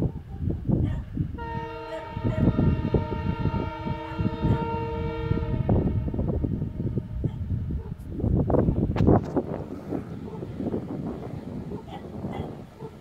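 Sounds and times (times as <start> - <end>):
wind buffeting microphone: 0.0 - 13.0
locomotive horn chord: 1.4 - 7.3.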